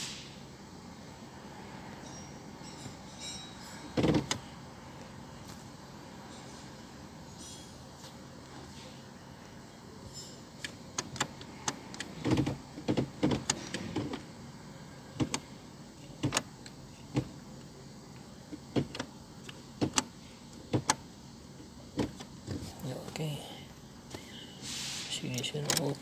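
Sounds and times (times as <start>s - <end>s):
gear selector clicking: 25.3s - 26.0s.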